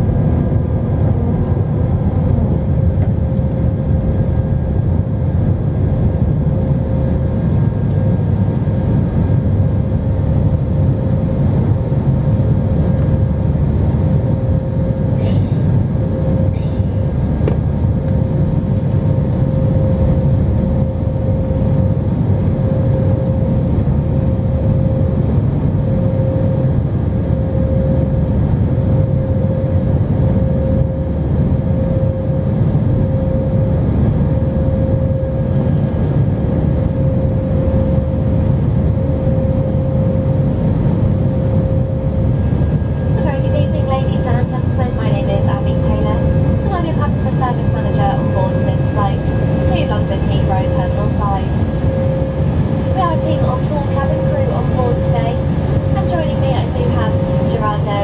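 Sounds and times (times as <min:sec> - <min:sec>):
jet engine and airflow rumble: 0:00.0 - 0:58.0
steady whining tone: 0:00.0 - 0:58.0.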